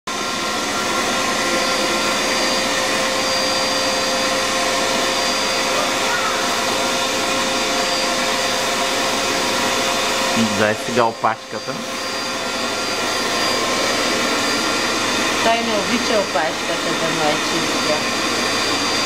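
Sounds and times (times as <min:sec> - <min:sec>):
vacuum cleaner running: 0:00.1 - 0:19.0.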